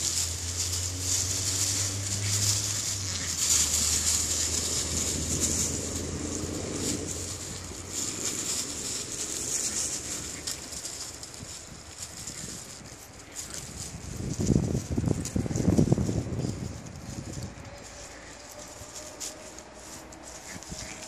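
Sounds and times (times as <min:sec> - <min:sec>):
dry leaves rustling and crackling: 0:00.0 - 0:21.0.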